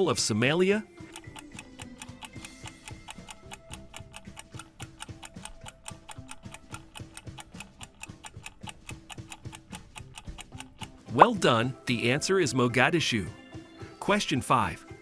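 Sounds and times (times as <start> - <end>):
clock ticking: 0.1 - 12.0.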